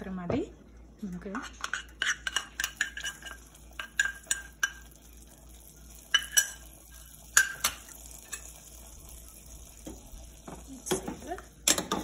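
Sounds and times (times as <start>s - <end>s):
spoon clinking against frying pan: 1.6s - 4.9s, 6.1s - 6.7s, 7.3s - 8.5s.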